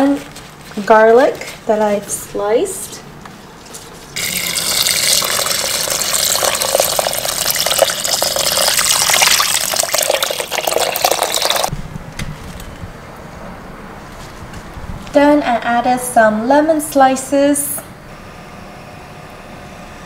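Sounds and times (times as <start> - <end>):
water pouring into metal pot: 4.2 - 11.7.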